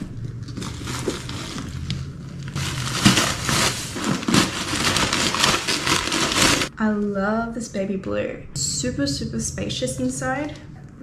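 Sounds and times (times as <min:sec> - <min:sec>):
packaging crinkling and rustling: 0:00.0 - 0:06.7.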